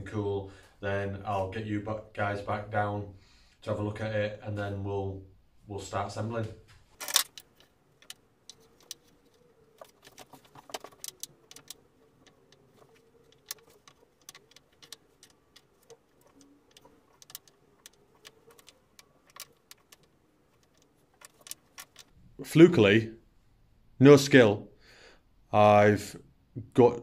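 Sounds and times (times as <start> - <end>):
wooden blocks clacking on board: 7.0 - 22.2.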